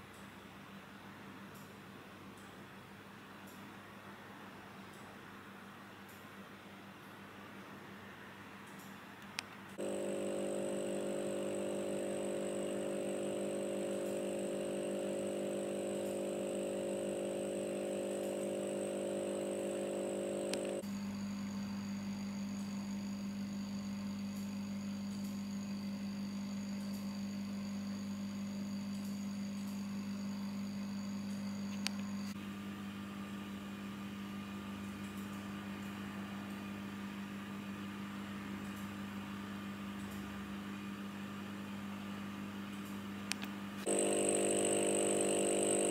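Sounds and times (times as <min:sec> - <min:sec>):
aquarium air pump humming: 0:09.8 - 0:45.9.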